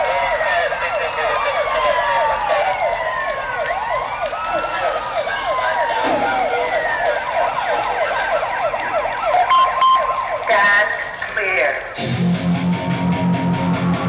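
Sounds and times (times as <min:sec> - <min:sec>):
fast yelping sirens: 0:00.0 - 0:12.0
rising and falling sirens: 0:00.0 - 0:14.0.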